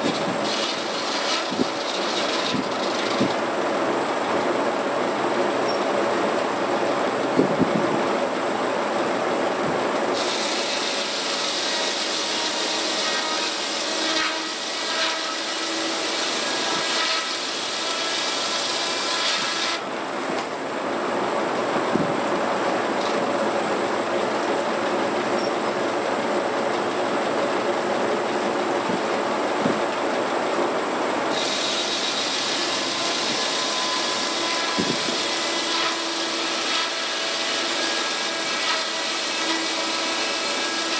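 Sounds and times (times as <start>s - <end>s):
saw blade whining through log: 0.0s - 3.6s, 10.2s - 19.9s, 31.3s - 40.9s
sawmill running: 0.0s - 40.9s.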